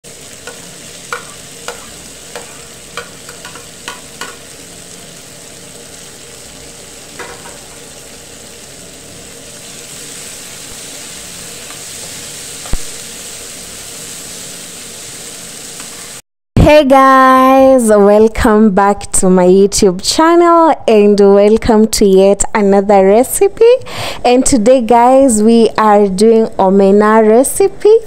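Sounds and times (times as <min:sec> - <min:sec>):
frying pan sizzling: 0:00.0 - 0:16.2
food being stirred in pan: 0:00.1 - 0:16.2.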